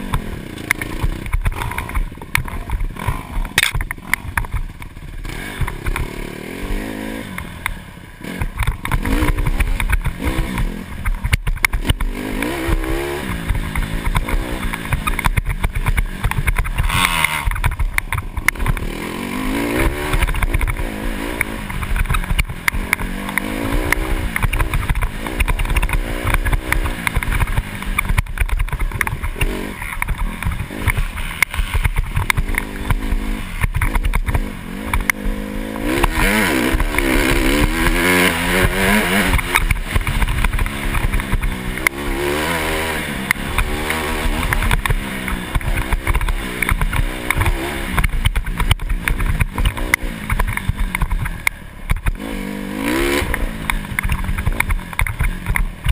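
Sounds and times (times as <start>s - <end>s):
dirt bike engine revving: 0.0s - 55.9s
knocks and rattles: 8.4s - 35.3s.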